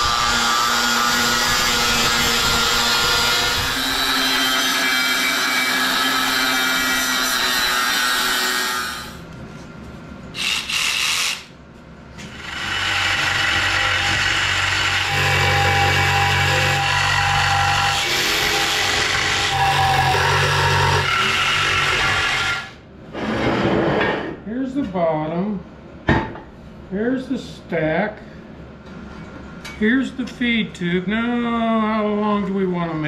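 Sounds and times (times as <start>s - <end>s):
angle grinder cutting steel: 0.0s - 9.2s, 12.4s - 22.7s.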